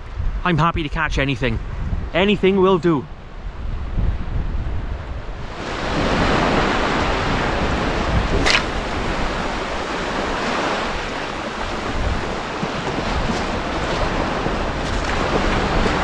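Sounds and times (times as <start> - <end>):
wind on microphone: 0.0 - 16.0
waves washing up pebble beach: 5.5 - 16.0
fishing rod whoosh: 8.1 - 9.6.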